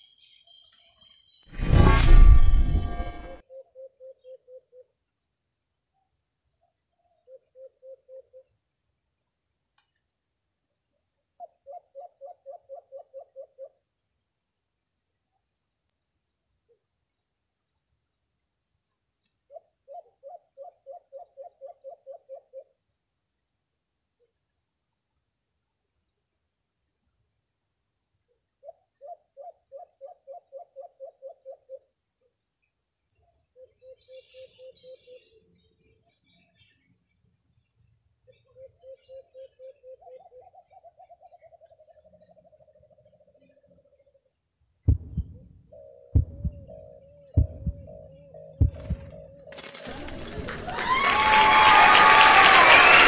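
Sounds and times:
insects shrilling: 0:49.1 - 0:50.2.

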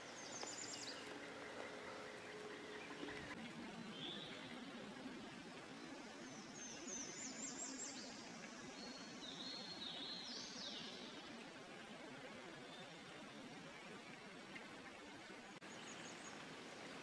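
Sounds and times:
small songbird singing: 0:00.0 - 0:04.6
faint steady hiss: 0:00.0 - 0:17.0.

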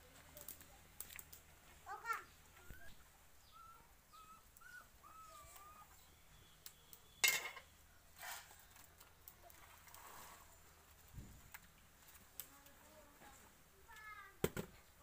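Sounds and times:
greens rustling: 0:00.0 - 0:15.0
greens clattering into bowl: 0:07.2 - 0:07.7.

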